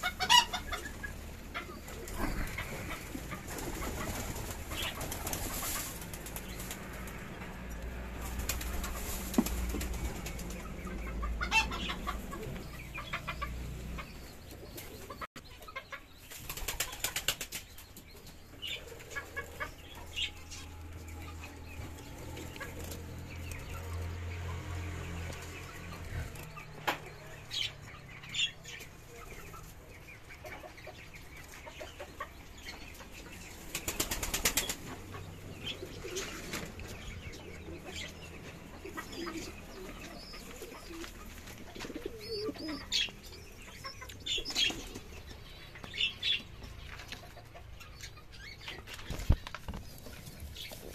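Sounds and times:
birds flapping wings: 3.1s - 7.3s, 8.1s - 10.8s, 16.3s - 17.7s, 33.6s - 35.1s.

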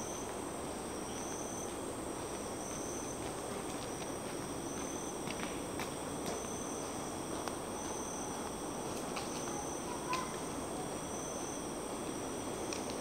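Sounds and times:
pulsing high insect call: 0.0s - 5.3s, 6.1s - 13.0s
insects droning: 0.0s - 13.0s
faint ticks: 12.7s - 13.0s.

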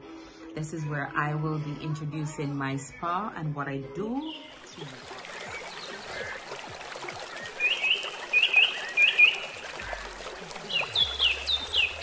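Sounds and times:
steady trickling hiss: 4.5s - 12.0s.

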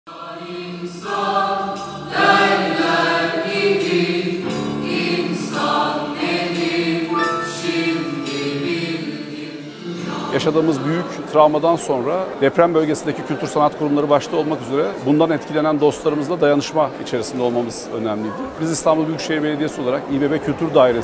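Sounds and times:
choir singing sustained chords: 0.1s - 12.0s.

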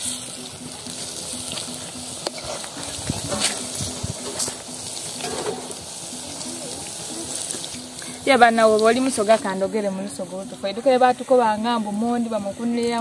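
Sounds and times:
dough sizzling in hot oil: 0.0s - 13.0s
faint background music: 0.0s - 13.0s.

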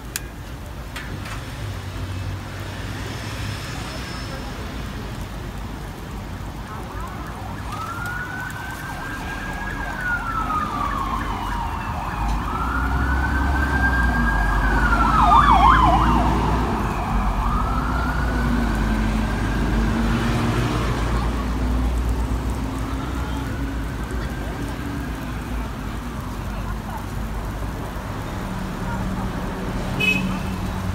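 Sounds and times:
siren wailing: 7.0s - 19.8s.

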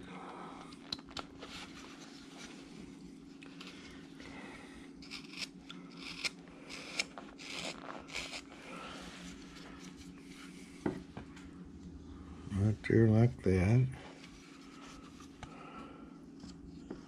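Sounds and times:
steady low hum: 0.0s - 17.0s
knife scraping wood: 5.0s - 10.5s.

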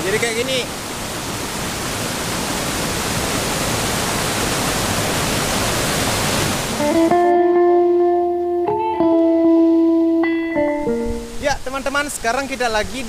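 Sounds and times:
waterfall rushing over rocks: 0.0s - 7.0s.

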